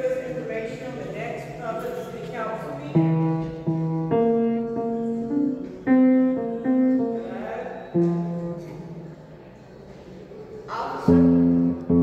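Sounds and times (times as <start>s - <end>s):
piano slow melody: 2.9s - 9.3s, 11.1s - 12.0s.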